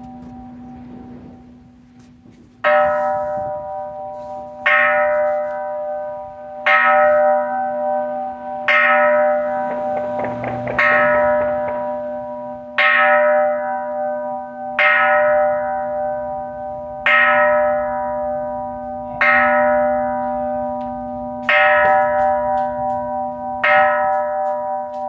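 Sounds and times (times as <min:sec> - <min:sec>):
temple bell ringing: 0:00.0 - 0:25.0.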